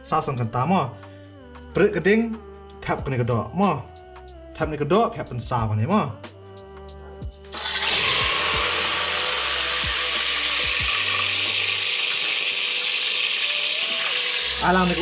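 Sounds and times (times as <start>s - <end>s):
meat sizzling in hot oil: 7.6s - 15.0s.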